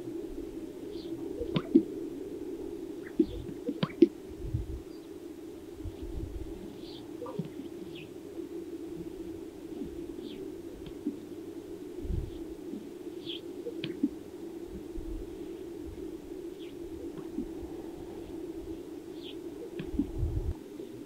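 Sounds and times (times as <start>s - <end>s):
grouse popping and whistling: 0.0s - 21.0s
wind rumbling on microphone: 0.0s - 21.0s.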